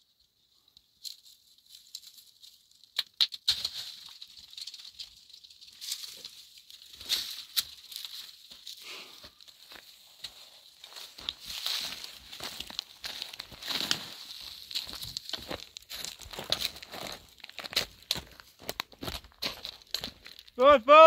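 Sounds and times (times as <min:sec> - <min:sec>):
dry brush crackling and rustling: 0:00.8 - 0:20.5
sharp cracks: 0:02.9 - 0:04.7.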